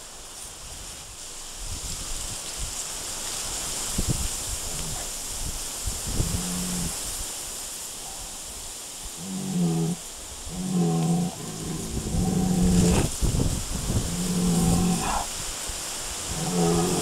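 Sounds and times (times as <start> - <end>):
cattle mooing: 4.7 - 5.0, 6.2 - 6.9, 9.2 - 13.1, 14.0 - 15.3, 16.3 - 17.0.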